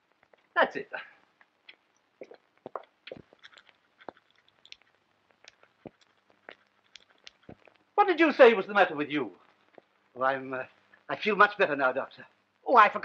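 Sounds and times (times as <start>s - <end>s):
faint small clicks and scratches: 1.4s - 8.0s, 9.4s - 10.1s.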